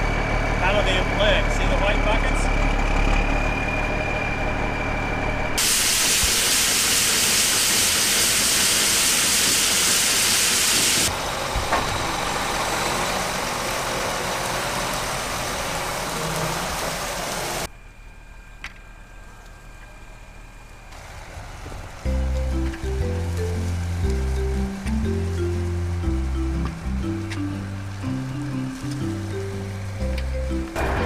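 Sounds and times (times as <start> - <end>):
truck engine idling: 0.0 - 31.0
corn pouring from auger hiss: 5.6 - 11.2.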